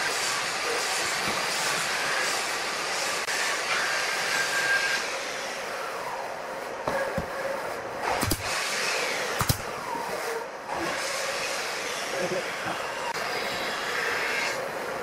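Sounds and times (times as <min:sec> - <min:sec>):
nail gun shots: 0:08.1 - 0:08.6, 0:09.3 - 0:09.7.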